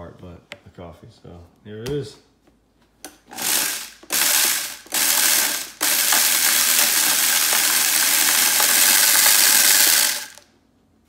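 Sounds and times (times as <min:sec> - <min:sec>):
blender grinding coffee beans: 0:03.2 - 0:10.4.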